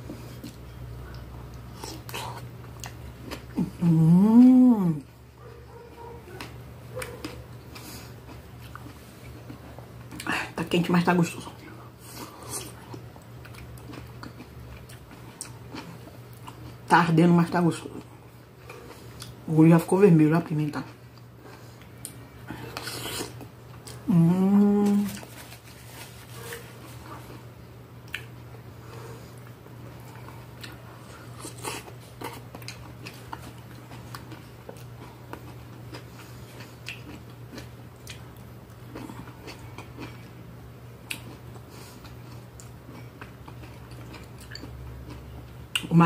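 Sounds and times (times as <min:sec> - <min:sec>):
chewing and mouth noises: 0:00.0 - 0:04.6, 0:05.4 - 0:10.4, 0:11.5 - 0:16.9, 0:26.2 - 0:40.4, 0:41.0 - 0:46.0
steady low hum: 0:00.0 - 0:46.0
person humming: 0:03.6 - 0:05.1, 0:24.0 - 0:25.2.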